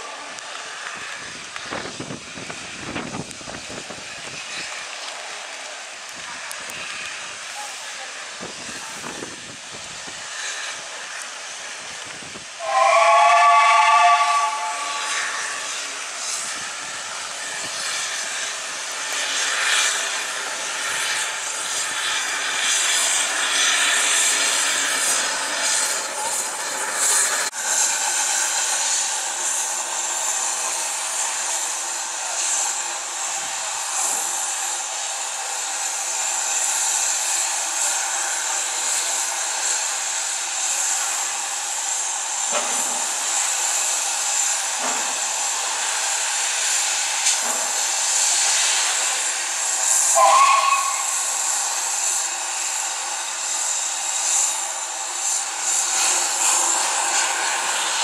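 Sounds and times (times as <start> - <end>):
steam locomotive hissing: 0.0 - 58.0.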